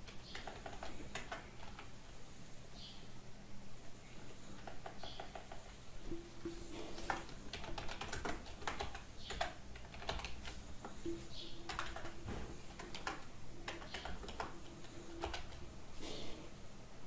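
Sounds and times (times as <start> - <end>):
computer keyboard typing: 0.0 - 2.0, 4.5 - 15.7.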